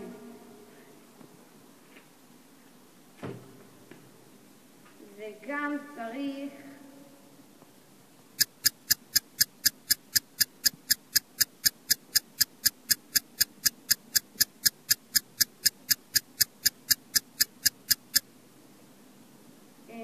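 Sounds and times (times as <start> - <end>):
stopwatch ticking: 8.4 - 18.3.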